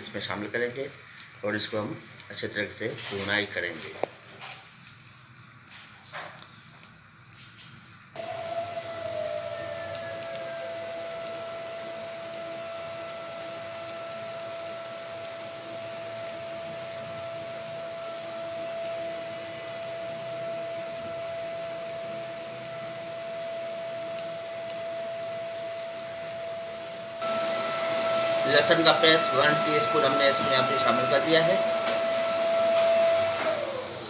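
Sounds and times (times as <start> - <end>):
even hiss: 0.0 - 21.3, 26.8 - 34.0
motor hum with whine: 8.2 - 34.0.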